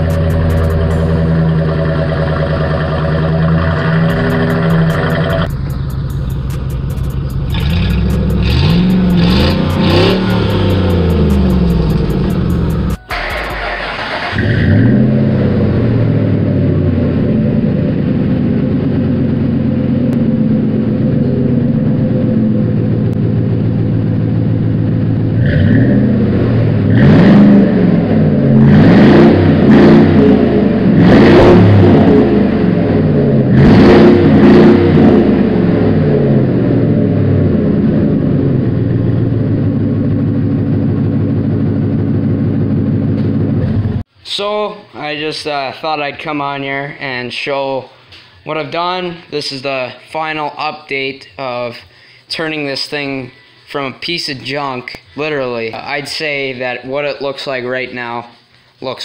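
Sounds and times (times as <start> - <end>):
truck engine idling and revving: 0.0 - 44.1.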